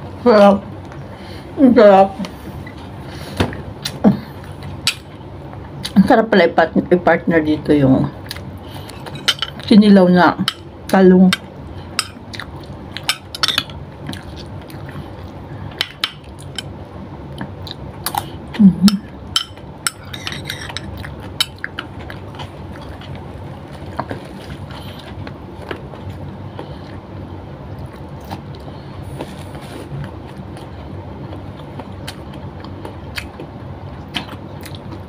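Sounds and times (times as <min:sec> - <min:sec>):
chewing: 0:20.0 - 0:27.0, 0:27.7 - 0:35.0.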